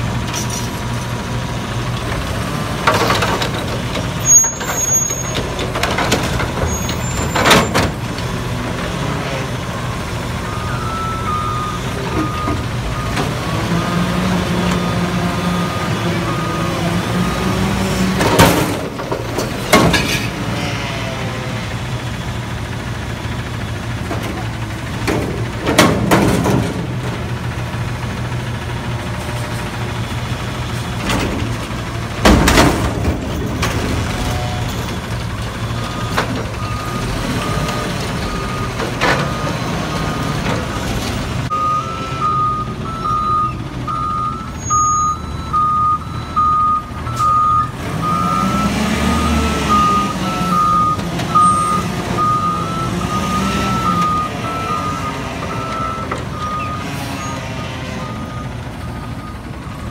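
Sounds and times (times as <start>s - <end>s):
back-up alarm beeping: 10.5s - 13.2s, 41.5s - 56.9s
garbage truck engine running: 21.2s - 59.9s.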